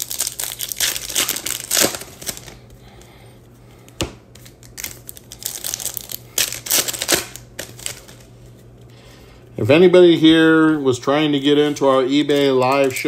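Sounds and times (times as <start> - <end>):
card pack wrappers crinkling: 0.0 - 2.7, 4.4 - 8.4, 11.1 - 13.0.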